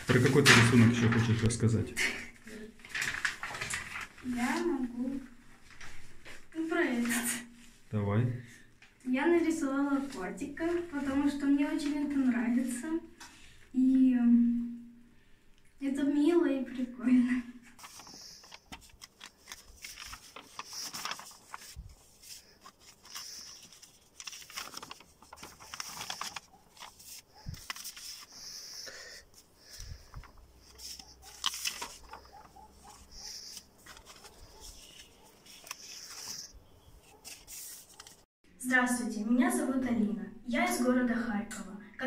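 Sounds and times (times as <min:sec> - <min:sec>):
paper sheets rustling: 0:00.0 - 0:07.4, 0:09.6 - 0:12.9, 0:17.8 - 0:38.3.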